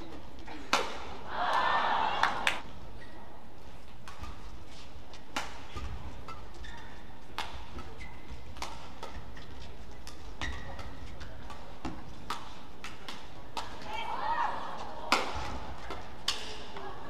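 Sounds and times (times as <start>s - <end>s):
low arena background: 0.0s - 17.0s
rackets striking shuttlecock: 0.5s - 1.2s, 3.9s - 14.0s, 14.9s - 16.9s
shoes squeaking on floor: 4.2s - 11.4s.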